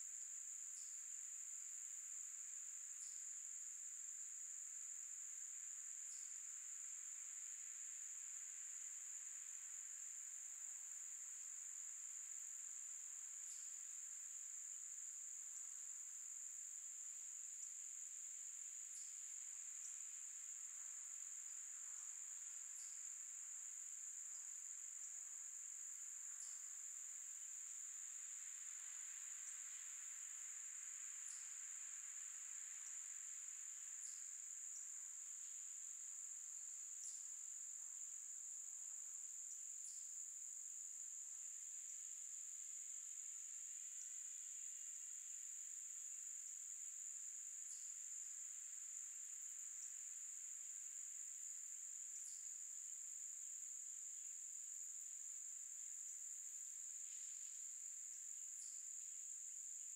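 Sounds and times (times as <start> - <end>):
insects trilling: 0.0 - 59.9.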